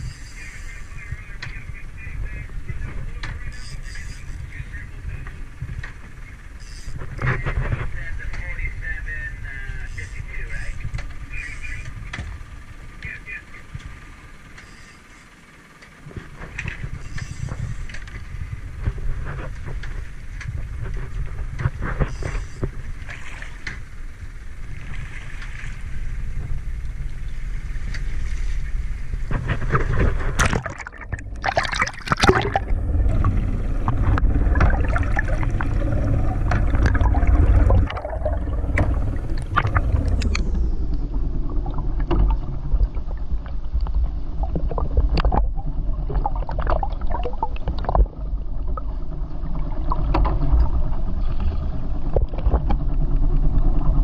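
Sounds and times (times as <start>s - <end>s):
low rumble: 0.0s - 14.5s, 16.0s - 54.0s
muffled underwater gurgling: 0.0s - 25.1s, 25.7s - 54.0s
wind: 0.0s - 54.0s
sea slapping against a boat: 1.0s - 6.3s, 15.8s - 54.0s
splash: 30.4s - 33.3s, 34.1s - 40.3s.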